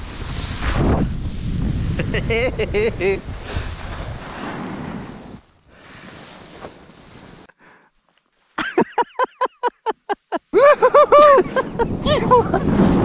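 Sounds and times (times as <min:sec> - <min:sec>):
faint rush of wind: 0:00.0 - 0:07.5
man laughing hard: 0:02.0 - 0:03.2, 0:08.6 - 0:12.8.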